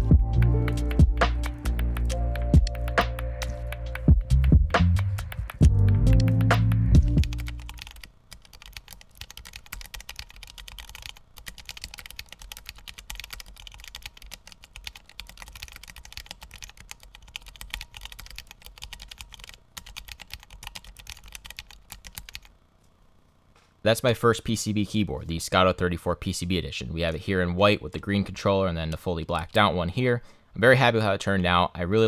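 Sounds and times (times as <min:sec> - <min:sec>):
mechanical keyboard typing: 0:00.4 - 0:22.5.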